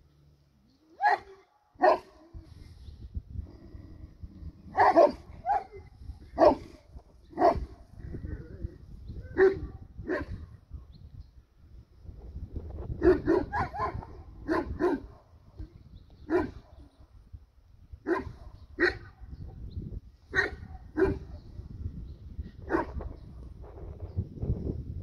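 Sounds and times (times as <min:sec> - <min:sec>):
dogs barking: 0:01.0 - 0:02.1, 0:04.7 - 0:06.8, 0:07.4 - 0:07.7, 0:09.4 - 0:10.4, 0:13.0 - 0:15.3, 0:16.3 - 0:16.9, 0:18.0 - 0:19.3, 0:20.3 - 0:21.4, 0:22.7 - 0:23.0.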